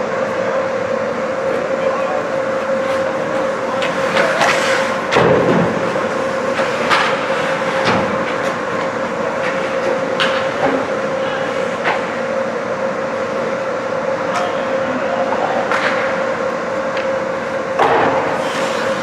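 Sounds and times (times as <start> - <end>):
steady hum: 0.0 - 19.0
hockey sticks and puck clacking: 3.7 - 5.4, 8.2 - 10.8, 15.6 - 16.2.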